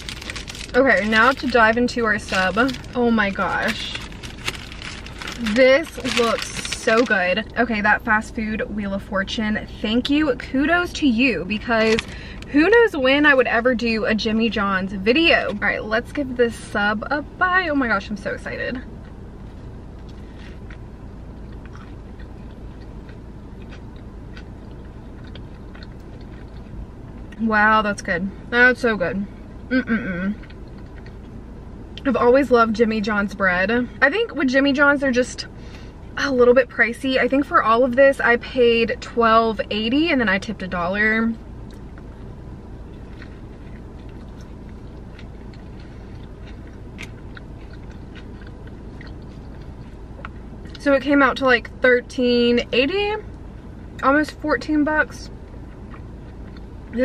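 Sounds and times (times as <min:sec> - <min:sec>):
steady low hum: 0:00.0 - 0:57.0
steady low rumble: 0:00.0 - 0:57.0
person chewing sandwich: 0:03.6 - 0:06.7, 0:19.0 - 0:27.4, 0:30.3 - 0:31.4, 0:41.6 - 0:50.8.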